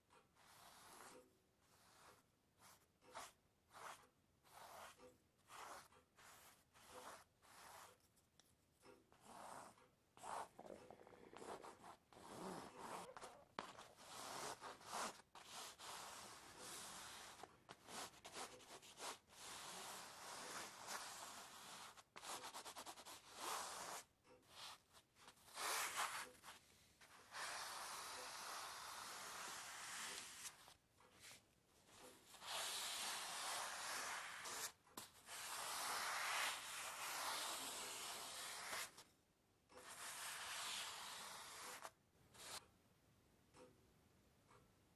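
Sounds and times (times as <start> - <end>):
dry rubbing or scraping: 9.1 - 39.0.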